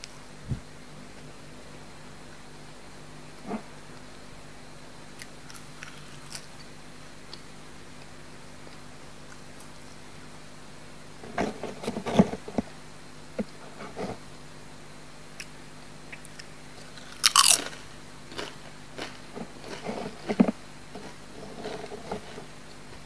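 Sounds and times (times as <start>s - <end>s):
crisp snacks crunching: 5.2s - 6.5s, 16.3s - 22.4s.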